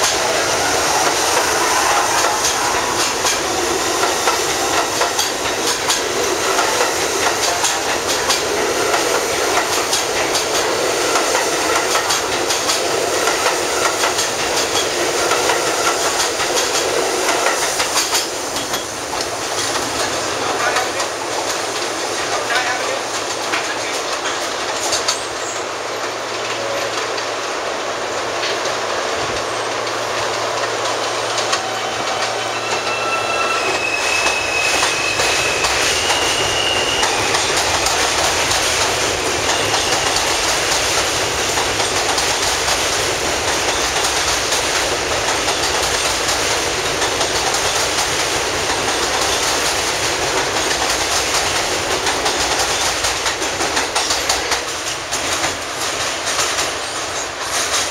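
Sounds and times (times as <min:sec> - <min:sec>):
train wheels rumbling over rails: 0:00.0 - 0:57.9
brief high whining tones: 0:31.5 - 0:37.1.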